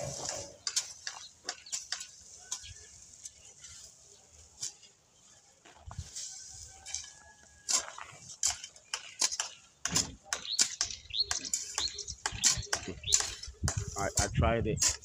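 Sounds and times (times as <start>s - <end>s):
spade chopping and scraping soil: 0.0s - 2.9s, 6.8s - 15.0s.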